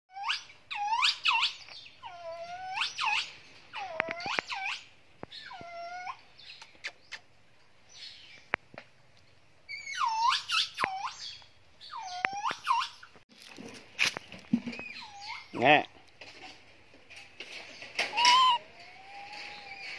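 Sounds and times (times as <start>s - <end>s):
baby monkey high-pitched calls: 0.1s - 6.3s, 9.7s - 13.1s, 14.8s - 15.6s, 18.0s - 19.9s.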